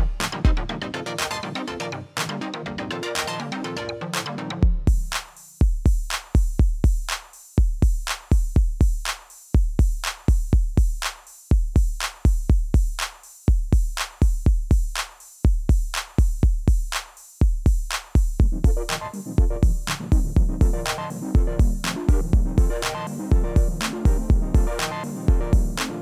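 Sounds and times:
drum machine beat: 0:00.0 - 0:01.4, 0:04.2 - 0:26.0.

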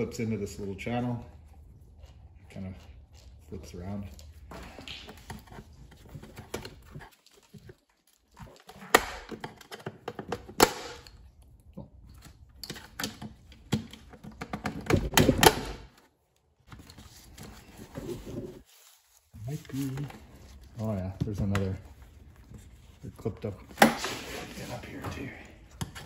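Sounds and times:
rustling: 0:15.9 - 0:26.0.

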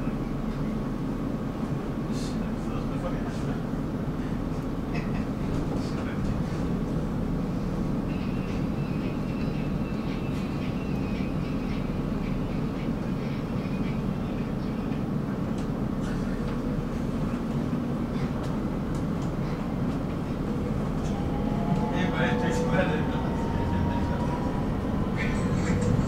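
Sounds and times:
tram wheels rumbling on rails: 0:00.0 - 0:26.0.

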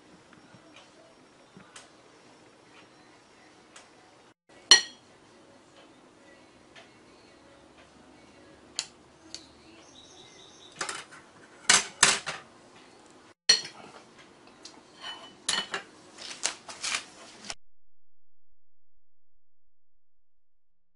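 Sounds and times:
utensils clinking on porcelain dishes: 0:15.0 - 0:15.9.

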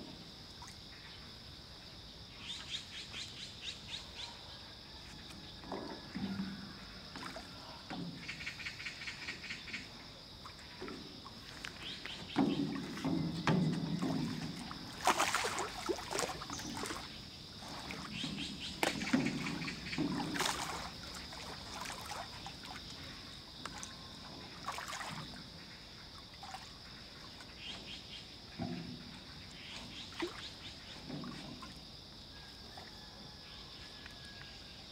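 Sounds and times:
water lapping against metal boat: 0:02.5 - 0:34.9
sharp knocks from boat: 0:10.6 - 0:25.4, 0:27.6 - 0:31.8.

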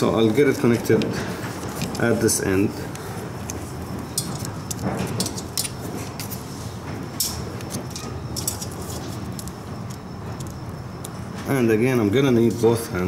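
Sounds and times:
steady low hum: 0:00.0 - 0:13.0
small metallic clicks and rattles: 0:02.9 - 0:06.4, 0:07.2 - 0:11.2.

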